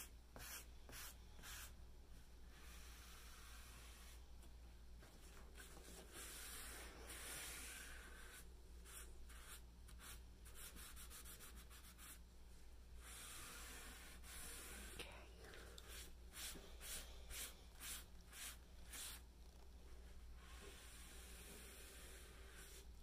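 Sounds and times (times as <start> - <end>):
faint rubbing and scuffing: 5.0 - 9.6.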